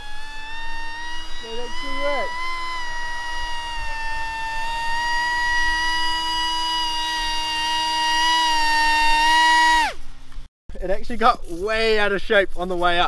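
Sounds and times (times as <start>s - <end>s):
electric motor and propeller whine: 0.0s - 10.1s.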